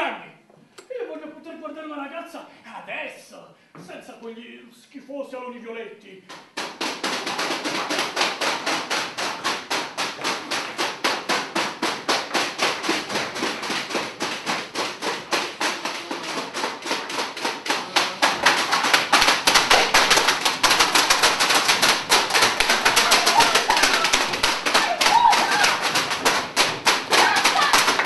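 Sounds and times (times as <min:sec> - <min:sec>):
rhythmic claps or knocks: 0:06.2 - 0:28.0.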